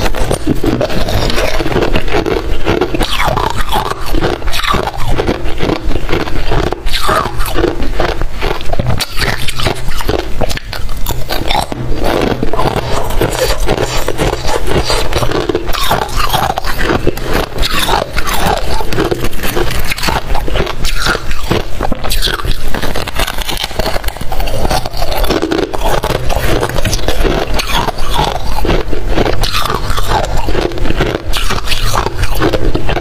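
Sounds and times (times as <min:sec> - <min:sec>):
chewing crunchy frost: 0:00.0 - 0:33.0.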